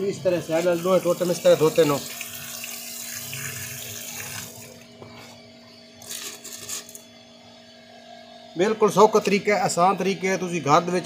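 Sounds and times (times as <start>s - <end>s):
hose water splashing: 0.4s - 4.8s.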